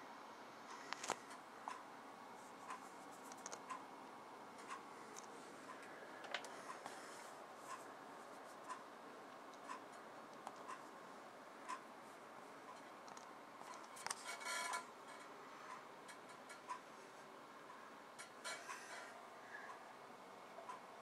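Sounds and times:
room hiss: 0:00.0 - 0:12.7
clock ticking faintly: 0:00.7 - 0:01.9, 0:04.5 - 0:07.0, 0:08.6 - 0:11.0, 0:11.6 - 0:11.9, 0:14.7 - 0:21.0.

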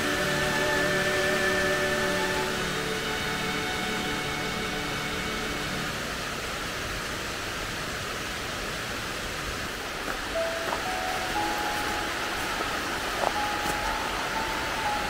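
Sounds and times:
waterfall rushing: 0:00.0 - 0:15.0
faint background music: 0:10.3 - 0:15.0.

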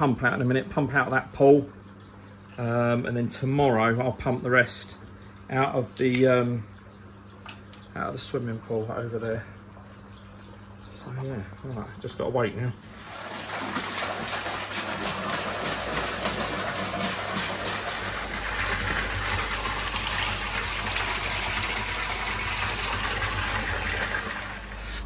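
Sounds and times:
water gushing into a pond: 0:07.9 - 0:25.0.

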